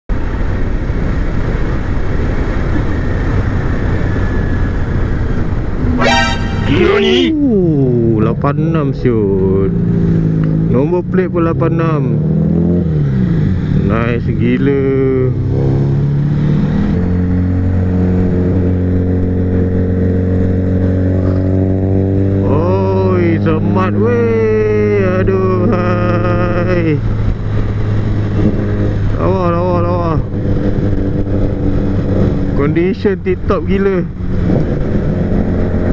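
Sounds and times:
wind rush on microphone: 0.1s - 6.0s, 24.2s - 35.9s
road noise: 0.1s - 35.9s
motorcycle engine cruising: 0.5s - 35.9s
motorcycle engine: 2.4s - 8.1s.

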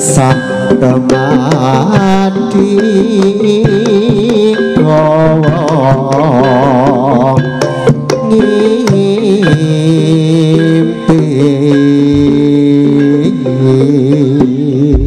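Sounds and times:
hand drum strokes: 0.0s - 15.0s
live ensemble music: 0.0s - 15.0s.

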